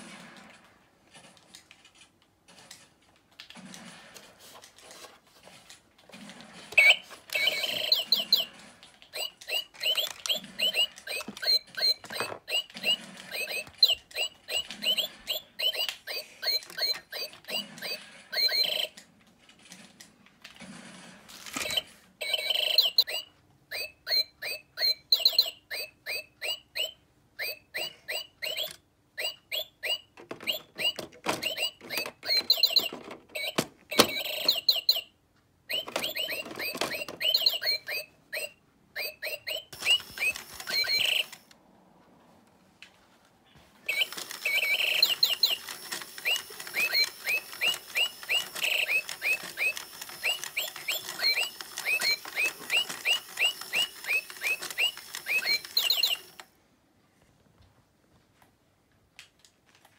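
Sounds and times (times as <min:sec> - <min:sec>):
toy bird electronic chirping: 0:06.8 - 0:19.0, 0:21.5 - 0:41.5, 0:43.9 - 0:56.5.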